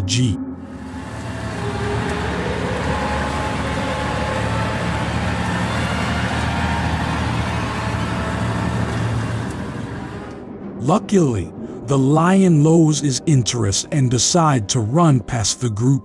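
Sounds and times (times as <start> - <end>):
vehicle engine running: 0.6 - 10.6
road noise: 0.6 - 12.2.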